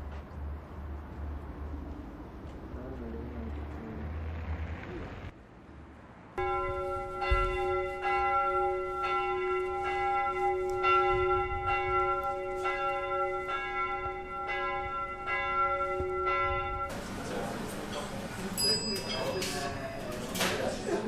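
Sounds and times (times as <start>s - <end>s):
church bell tolling: 6.4s - 20.3s.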